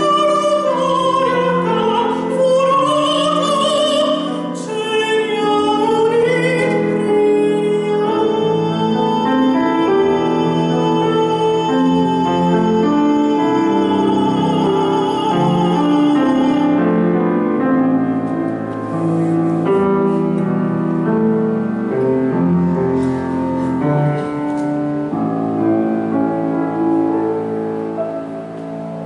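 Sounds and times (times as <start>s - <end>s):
countertenor singing with vibrato: 0.0s - 17.1s
piano chords: 0.0s - 29.0s.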